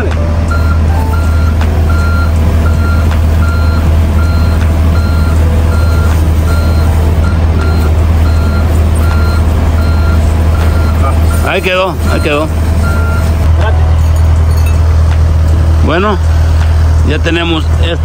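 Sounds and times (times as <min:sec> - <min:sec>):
diesel engine running: 0:00.0 - 0:18.0
travel alarm beeping: 0:00.5 - 0:13.5.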